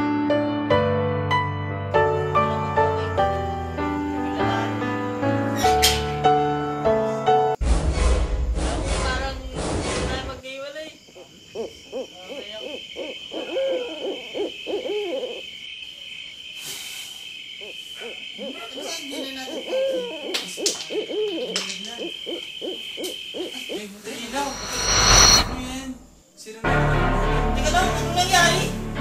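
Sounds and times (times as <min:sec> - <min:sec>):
owl hooting: 0:11.2 - 0:15.5, 0:17.6 - 0:23.8
steady high-pitched tone: 0:24.2 - 0:26.0.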